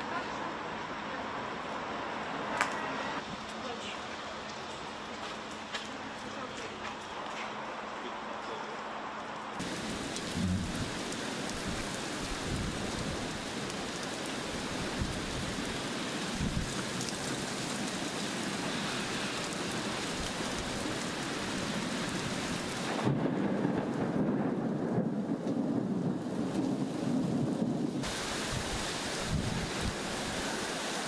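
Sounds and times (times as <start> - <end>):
heavy rain on pavement: 0.0 - 8.0, 9.4 - 31.0
rain drumming on flooded pavement: 9.5 - 31.0.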